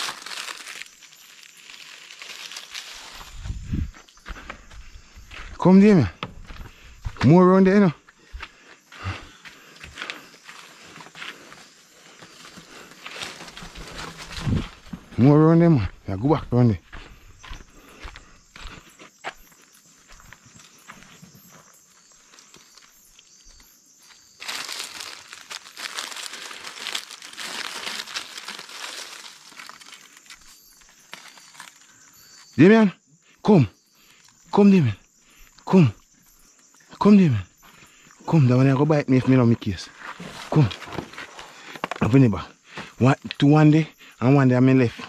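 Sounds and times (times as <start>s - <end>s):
dry leaves crackling and rustling: 0.0s - 3.7s, 12.2s - 14.9s, 22.3s - 32.2s
footsteps crunching in undergrowth: 0.0s - 32.4s, 39.8s - 42.1s.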